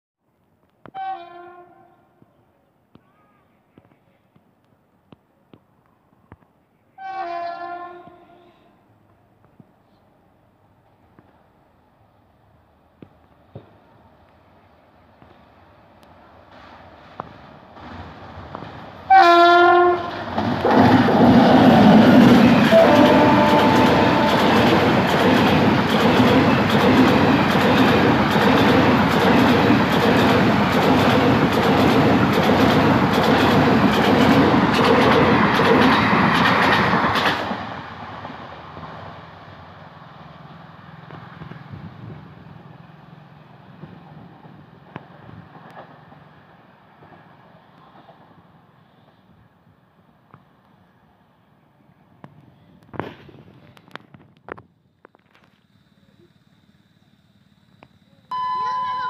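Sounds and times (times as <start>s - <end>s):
low train rumble: 0.8s - 59.0s
locomotive horn blast: 0.9s - 2.0s, 7.0s - 8.8s, 19.1s - 20.1s, 22.6s - 24.8s
train wheels clattering on rails: 16.5s - 38.9s.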